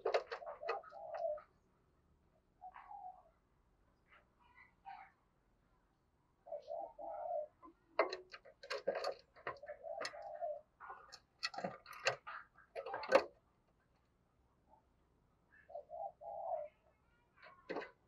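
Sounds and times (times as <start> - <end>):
dove cooing: 0.0 - 1.6, 2.6 - 3.4, 6.4 - 13.3, 15.6 - 16.8.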